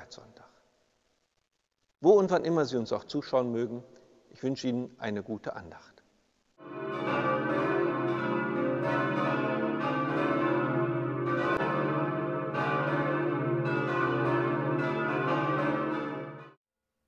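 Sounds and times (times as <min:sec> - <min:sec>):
church bells pealing: 0:06.6 - 0:16.6.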